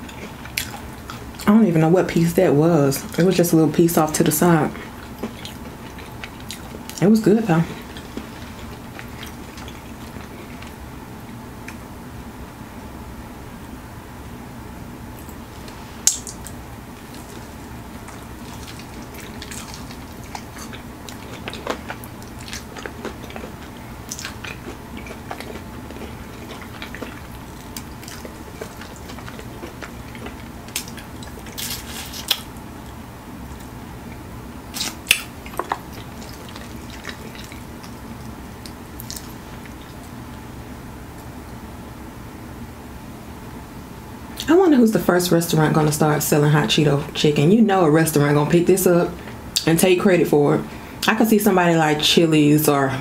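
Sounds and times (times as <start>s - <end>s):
crunchy chewing: 0.0s - 1.5s, 4.7s - 7.0s, 7.6s - 10.8s, 15.2s - 40.2s.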